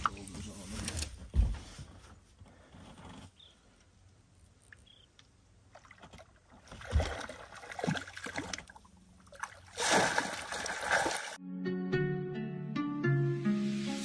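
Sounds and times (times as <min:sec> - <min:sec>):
fish splashing in water: 0:05.8 - 0:11.4.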